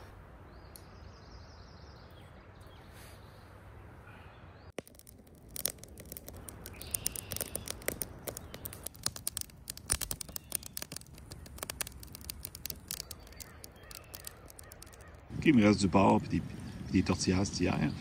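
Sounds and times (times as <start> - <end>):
campfire crackling and popping: 4.8 - 16.7.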